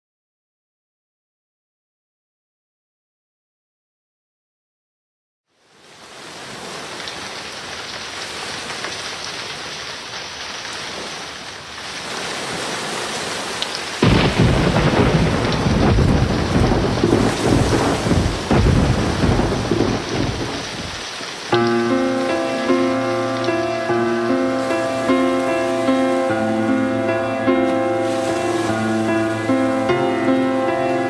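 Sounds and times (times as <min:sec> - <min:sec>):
rain hiss: 0:05.5 - 0:31.0
thunder clap rumbling: 0:14.0 - 0:31.0
musical chord: 0:21.5 - 0:31.0.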